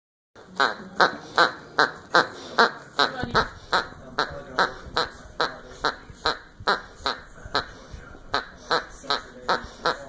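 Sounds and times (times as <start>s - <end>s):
squeaky dog toy squeaking: 0.4s - 7.7s.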